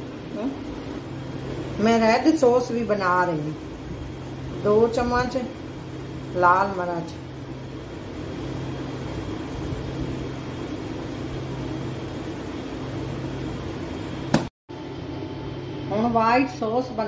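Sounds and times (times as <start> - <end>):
machine hum: 0.0 - 17.0.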